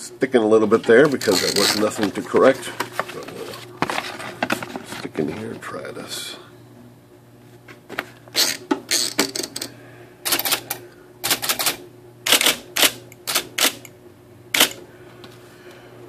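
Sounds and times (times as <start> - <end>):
typewriter motor hum: 1.0 - 2.5, 8.3 - 13.9, 14.5 - 14.8.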